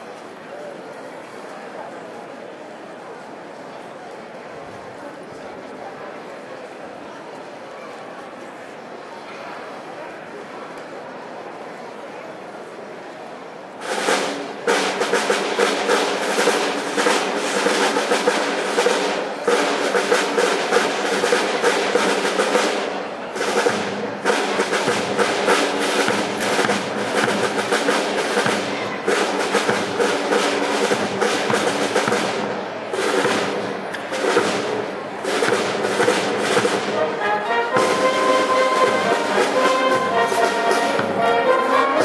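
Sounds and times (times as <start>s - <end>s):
brass band playing: 13.8s - 42.0s.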